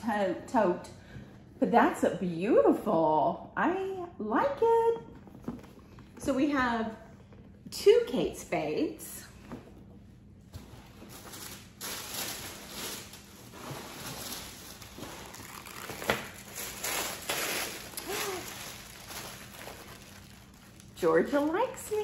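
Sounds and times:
tissue paper rustling: 10.6s - 22.0s.

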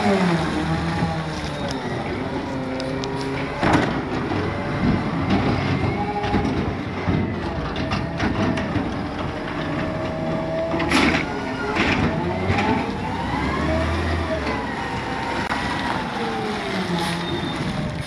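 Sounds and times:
garbage truck engine running: 0.0s - 18.0s
hydraulic arm lifting cart: 0.0s - 18.0s
cart knocking and clattering: 3.4s - 13.2s.

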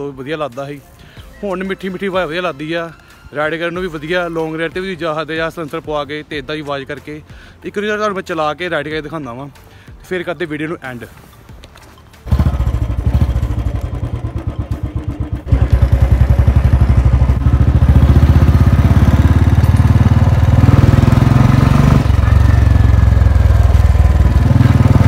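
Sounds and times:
motorcycle engine thumping: 12.3s - 22.4s.

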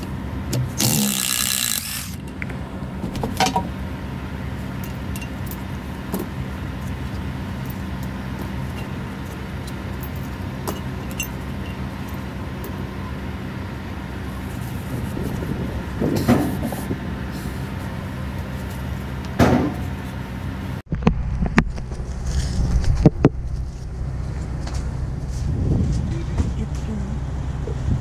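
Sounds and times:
steady low hum: 0.0s - 28.0s
small metal hardware clinking: 9.7s - 12.8s.

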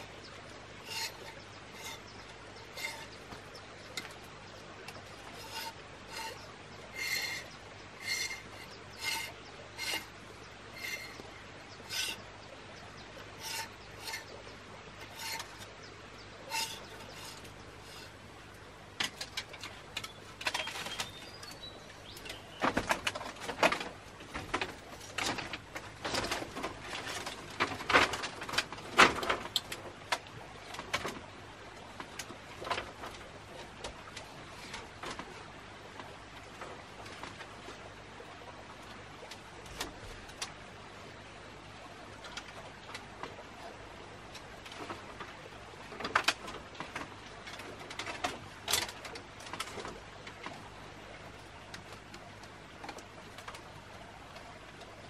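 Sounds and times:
bamboo clicks and knocks: 0.0s - 10.2s, 13.1s - 14.4s, 15.0s - 15.8s, 16.4s - 18.2s, 18.9s - 21.6s, 22.2s - 37.8s, 44.3s - 50.6s
knife scraping bamboo: 0.7s - 4.3s, 4.9s - 12.2s, 13.2s - 14.4s, 15.0s - 15.7s, 16.4s - 18.2s.

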